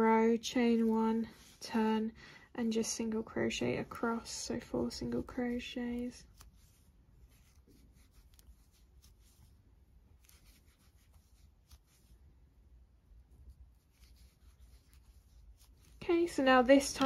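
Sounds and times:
crochet hook rubbing and ticking: 0:05.0 - 0:09.5, 0:10.1 - 0:12.1, 0:13.7 - 0:17.0.

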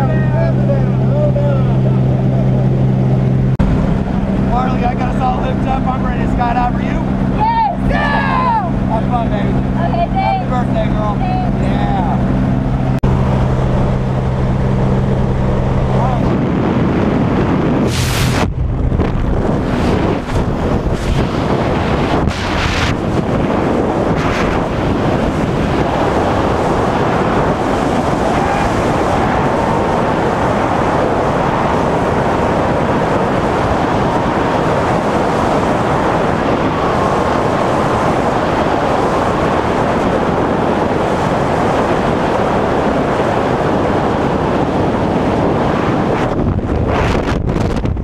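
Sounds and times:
wind blasting over microphone: 0:00.0 - 0:48.0.

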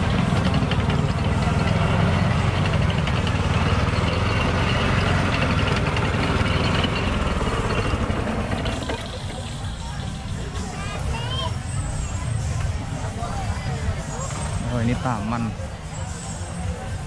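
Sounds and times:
engine idling: 0:00.0 - 0:10.8.

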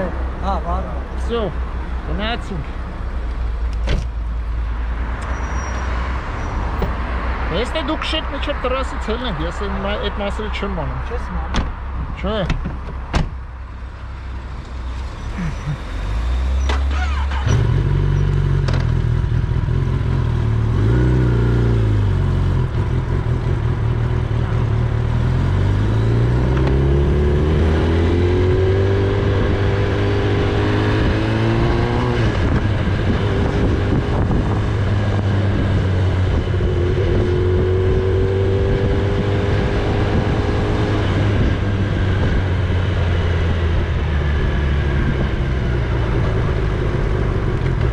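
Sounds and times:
motorcycle engine accelerating: 0:15.2 - 0:47.9.

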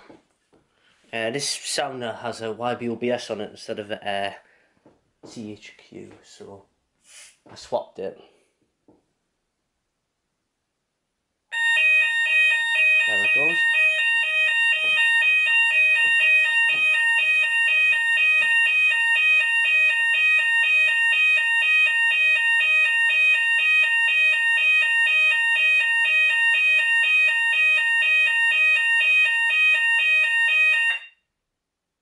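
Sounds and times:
fire alarm sounder tones: 0:11.5 - 0:31.3.

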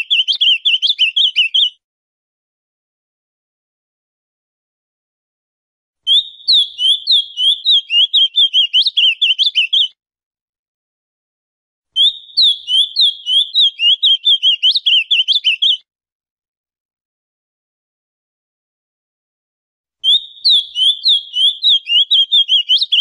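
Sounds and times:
bird singing warbled notes: 0:00.0 - 0:01.7, 0:06.1 - 0:09.9, 0:12.0 - 0:15.8, 0:20.0 - 0:23.0.

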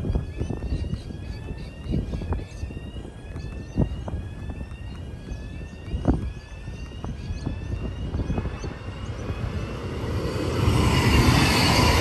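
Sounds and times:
electric train whine: 0:00.0 - 0:12.0.

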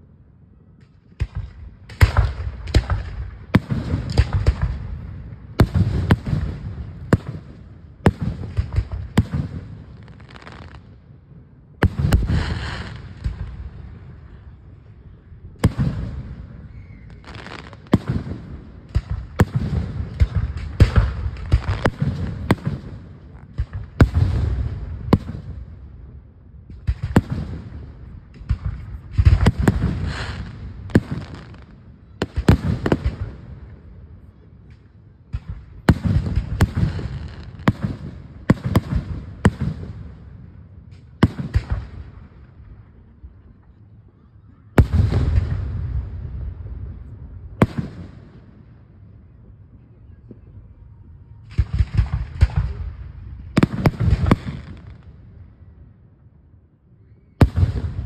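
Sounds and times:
low rumbling echo: 0:17.8 - 0:58.0.

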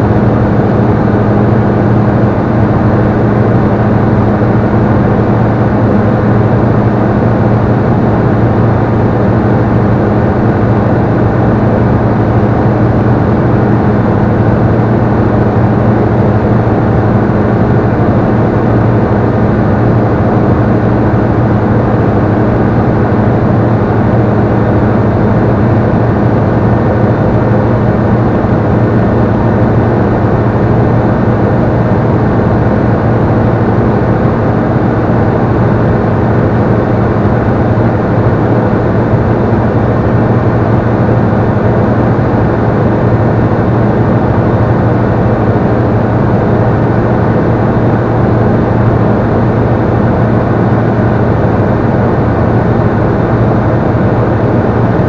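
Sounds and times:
aircraft engine and propeller drone: 0:00.0 - 0:55.0.

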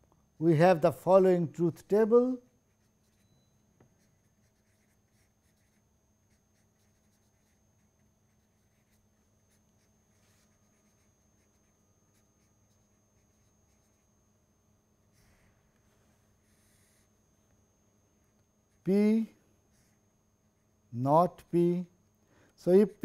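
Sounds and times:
felt-tip pen scratching on paper: 0:02.6 - 0:14.1.

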